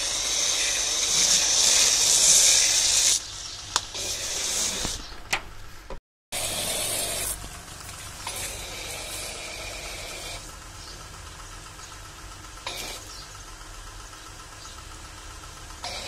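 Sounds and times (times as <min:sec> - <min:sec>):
pressure washer pump running: 0:00.0 - 0:05.0, 0:06.4 - 0:16.0
water spray hissing: 0:00.0 - 0:05.0, 0:06.4 - 0:10.5.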